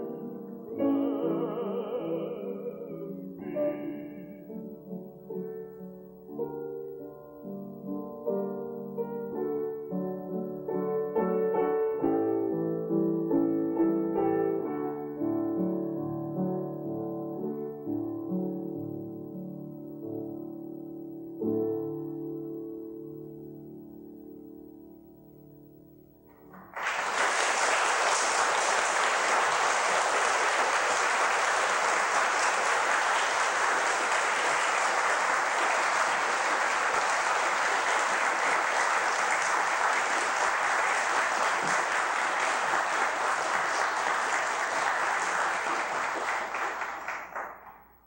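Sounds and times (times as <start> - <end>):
audience applauding: 26.3 - 48.0.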